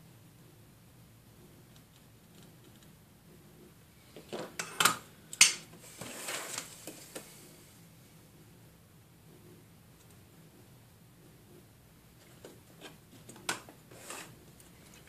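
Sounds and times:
microscope scraping across desk: 0:13.9 - 0:14.4.

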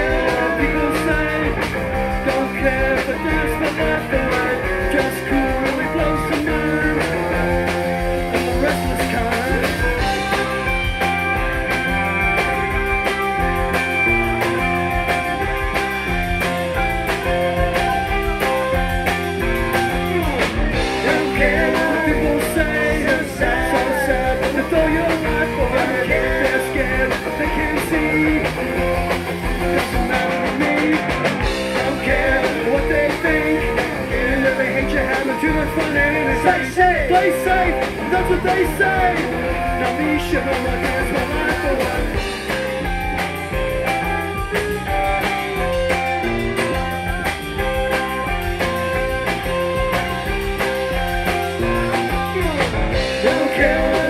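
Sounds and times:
rock band playing live: 0:00.0 - 0:54.0.

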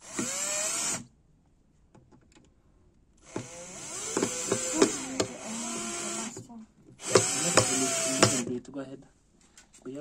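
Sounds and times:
cordless drill motor whine: 0:00.0 - 0:01.0, 0:03.2 - 0:06.4, 0:07.0 - 0:08.5.

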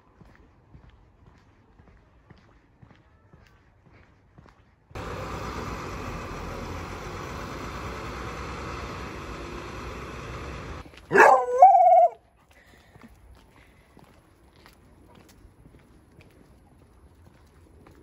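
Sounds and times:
street noise: 0:00.0 - 0:18.0
dog howling yelp: 0:11.1 - 0:12.2.

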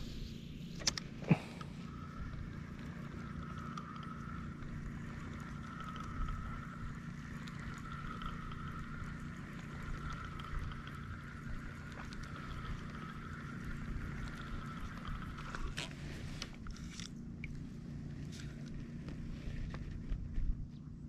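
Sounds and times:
boat engine droning: 0:00.0 - 0:21.0.

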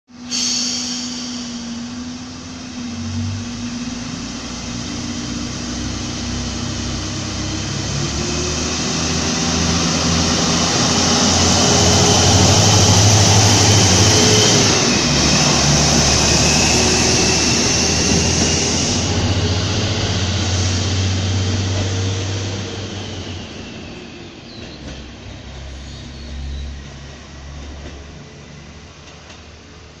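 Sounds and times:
diesel railcar engine revving: 0:00.1 - 0:30.0
train wheels on rails: 0:00.1 - 0:30.0.

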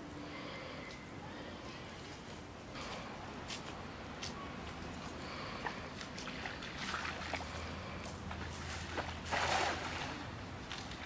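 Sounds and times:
feet splashing in shallow water: 0:05.3 - 0:11.0
cast net splashing on water: 0:05.7 - 0:11.0.

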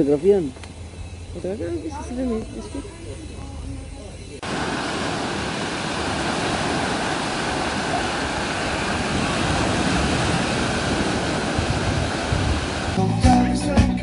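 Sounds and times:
waves washing up a beach: 0:04.4 - 0:13.0.

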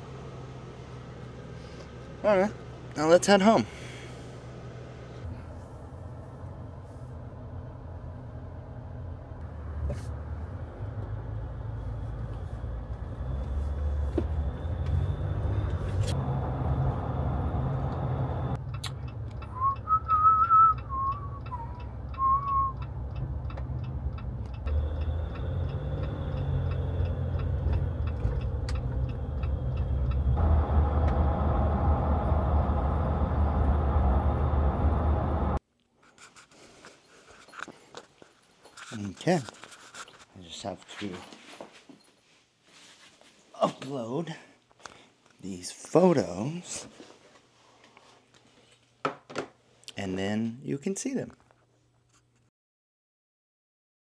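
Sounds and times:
car road and engine rumble: 0:00.0 - 0:35.6
man whistling a tune: 0:19.5 - 0:22.9
faint regular ticking: 0:20.8 - 0:30.4.

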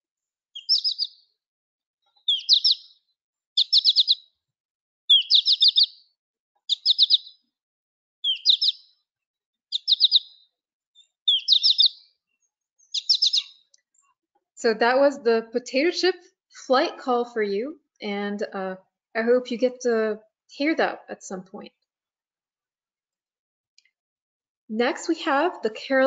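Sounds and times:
finch flight call chirps: 0:00.6 - 0:01.2, 0:02.2 - 0:02.9, 0:03.6 - 0:04.2, 0:05.1 - 0:06.0, 0:06.7 - 0:07.4, 0:08.2 - 0:08.8, 0:09.7 - 0:10.4, 0:11.0 - 0:12.0, 0:12.8 - 0:13.6.

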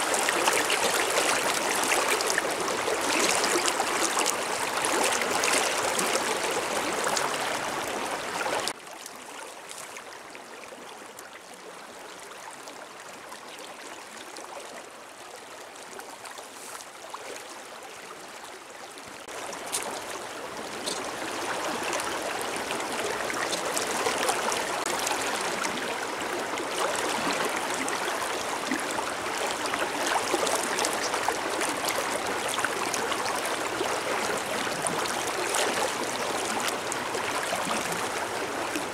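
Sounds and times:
river rushing over stones: 0:00.0 - 0:08.8, 0:19.2 - 0:38.9.

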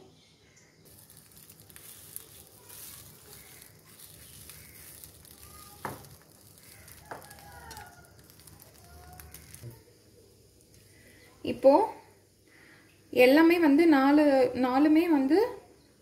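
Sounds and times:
batter sizzling and crackling: 0:00.6 - 0:13.6.

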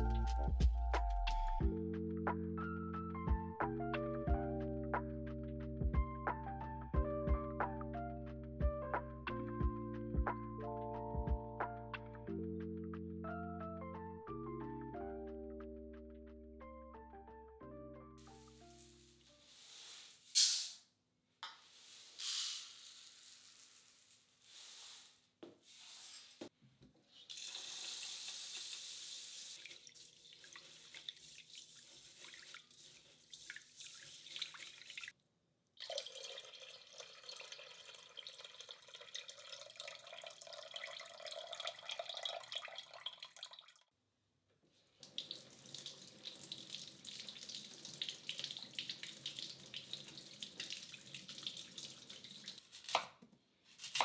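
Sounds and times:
hands swishing rice in water: 0:18.6 - 0:20.3, 0:23.2 - 0:25.2, 0:29.6 - 0:35.0.

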